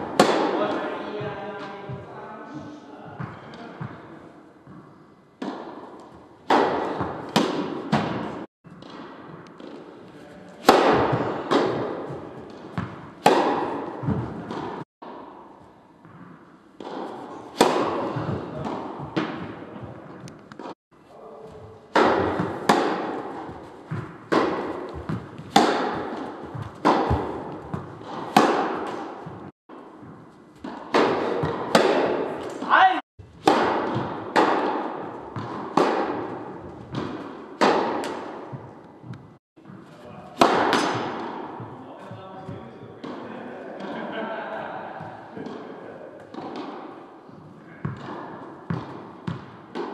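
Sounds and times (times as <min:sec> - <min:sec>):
tennis ball hits: 0:00.0 - 0:00.7, 0:04.6 - 0:10.0, 0:10.6 - 0:20.8, 0:21.9 - 0:32.8, 0:33.4 - 0:41.7, 0:46.2 - 0:47.0, 0:47.8 - 0:49.9.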